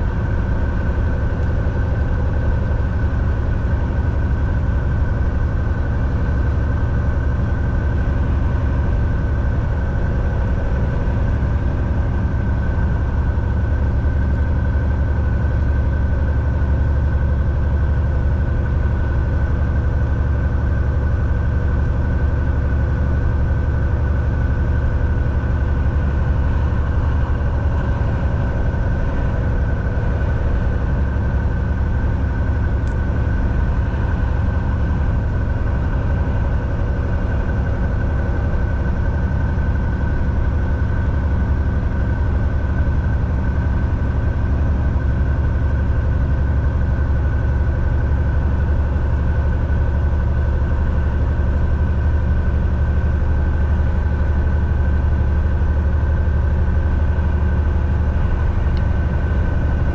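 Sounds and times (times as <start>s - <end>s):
diesel truck engine drone: 0.0s - 59.9s
road noise: 0.0s - 59.9s
thin steady whine: 18.6s - 59.9s.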